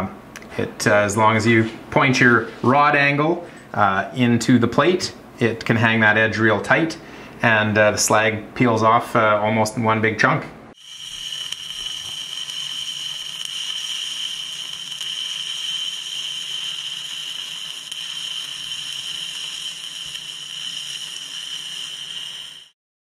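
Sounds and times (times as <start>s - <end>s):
welding arc hissing: 10.7s - 22.8s.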